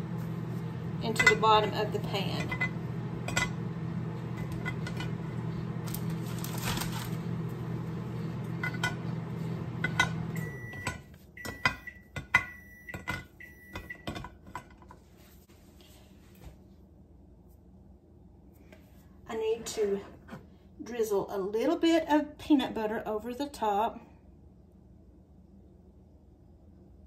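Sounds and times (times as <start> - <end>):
microwave oven humming: 0.0 - 14.9.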